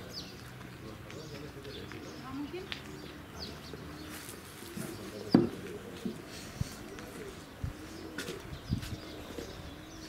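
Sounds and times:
doves cooing: 0:01.2 - 0:10.0
sharp knocks: 0:05.3 - 0:05.6.

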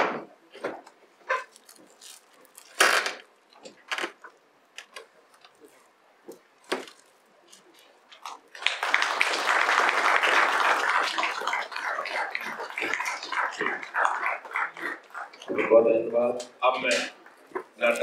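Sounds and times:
audience applauding: 0:08.5 - 0:15.5.

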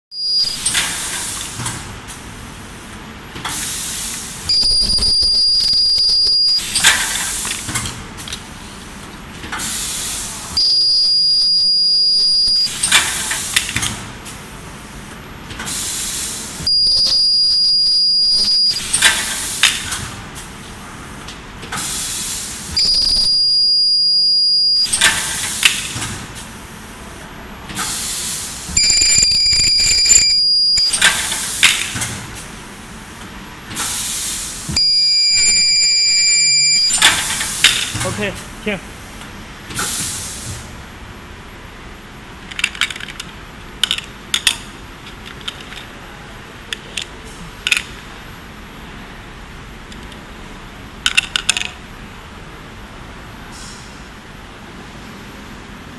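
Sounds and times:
high-pitched welding tone: 0:00.1 - 0:01.2, 0:04.5 - 0:07.3, 0:10.6 - 0:13.2, 0:16.7 - 0:19.3, 0:22.8 - 0:25.5, 0:28.8 - 0:31.4, 0:34.8 - 0:37.3.

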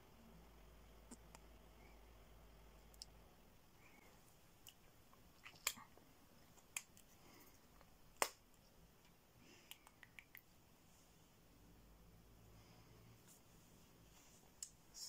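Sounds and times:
lip smacks: 0:04.6 - 0:06.0, 0:06.6 - 0:10.5.

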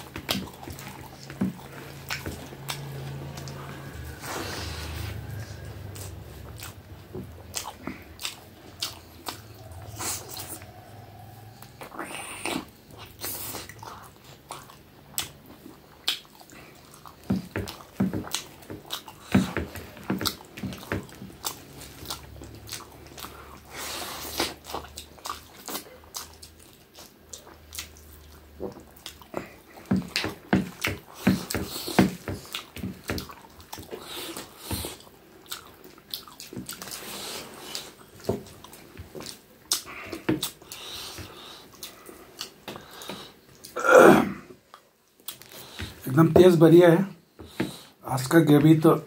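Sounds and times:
person chewing: 0:00.0 - 0:46.1
mouth clicks and smacks: 0:11.8 - 0:23.3.

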